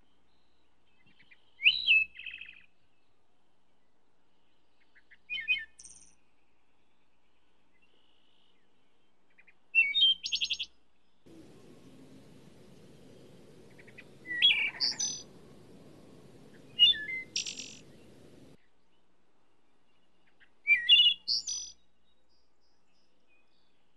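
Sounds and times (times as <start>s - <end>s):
bird chirping: 11.3s - 18.6s.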